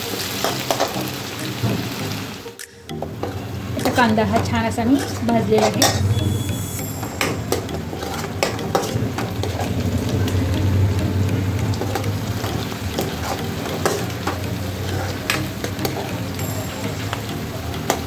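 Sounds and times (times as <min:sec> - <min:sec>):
onions sizzling in hot oil: 0:00.0 - 0:02.5, 0:11.5 - 0:18.0
metal spatula scraping pan: 0:03.2 - 0:10.2, 0:11.8 - 0:16.1.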